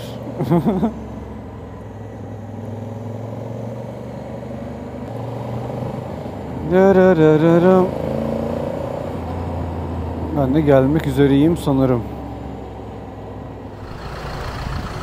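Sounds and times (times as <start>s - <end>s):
motorcycle engine droning: 13.7s - 15.0s.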